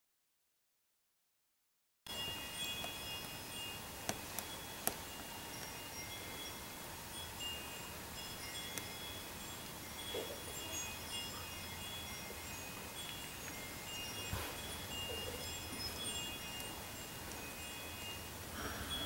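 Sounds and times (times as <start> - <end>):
high chime tones: 2.1 - 19.0.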